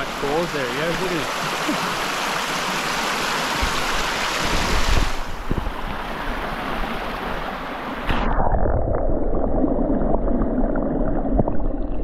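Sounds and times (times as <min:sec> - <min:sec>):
creek water rushing: 0:00.0 - 0:08.2
microphone bumps and rumble: 0:03.6 - 0:05.8.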